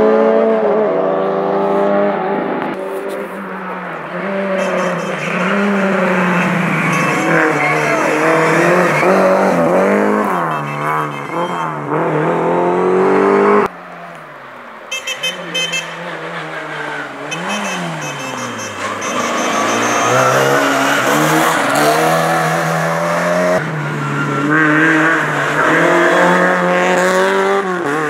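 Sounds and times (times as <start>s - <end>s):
rally car engines revving: 0.0s - 14.2s, 15.2s - 28.0s.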